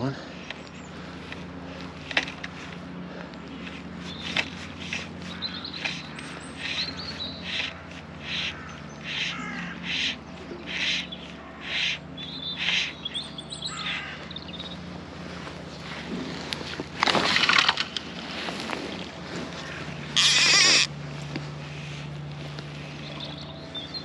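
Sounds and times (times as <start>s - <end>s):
small birds chirping: 0.0s - 2.5s, 3.2s - 16.0s, 21.8s - 24.0s
crow cawing: 5.2s - 13.0s, 13.6s - 14.4s, 19.6s - 20.9s.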